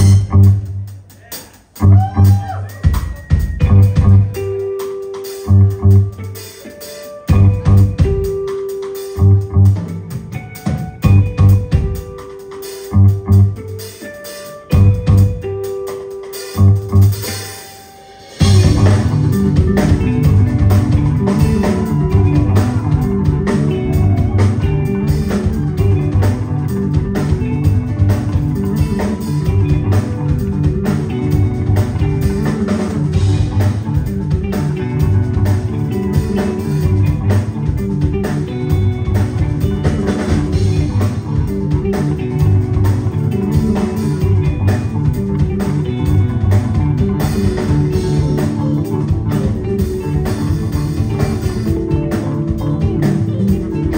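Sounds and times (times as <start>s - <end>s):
live rock band playing: 0.0s - 53.9s.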